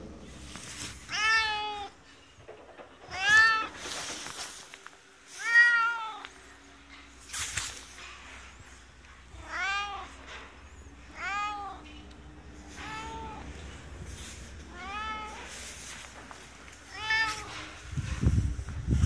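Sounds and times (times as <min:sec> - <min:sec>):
cat meowing: 0:05.4 - 0:06.3, 0:09.3 - 0:10.2, 0:11.1 - 0:11.9, 0:12.7 - 0:13.6, 0:14.6 - 0:15.6, 0:16.9 - 0:17.8.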